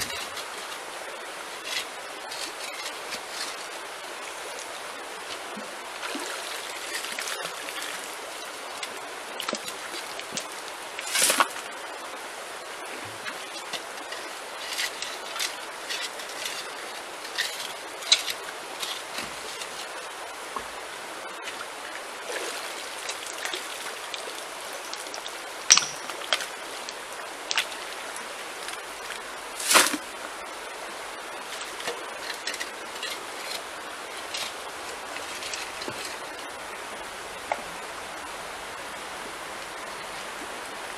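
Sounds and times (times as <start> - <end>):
stream running over stones: 0.0 - 40.9
hand tool scraping gravel: 1.6 - 3.7, 13.8 - 20.0, 25.7 - 26.4.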